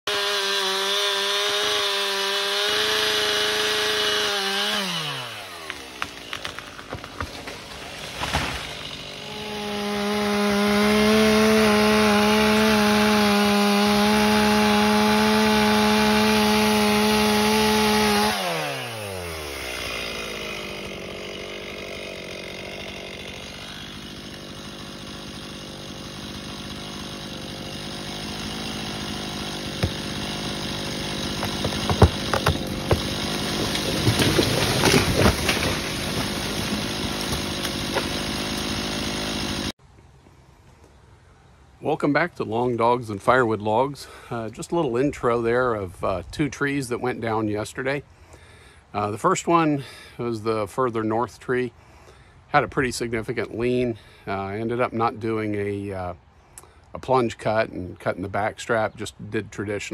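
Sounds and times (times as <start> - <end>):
wood cracking: 0.1 - 39.7
chainsaw cutting wood: 0.1 - 39.8.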